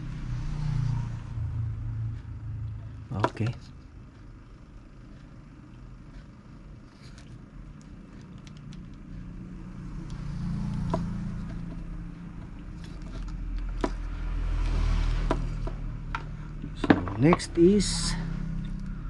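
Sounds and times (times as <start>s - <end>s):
low engine rumble: 0.0s - 19.0s
clicks and scrapes of handled wires: 6.1s - 9.2s, 10.1s - 17.4s.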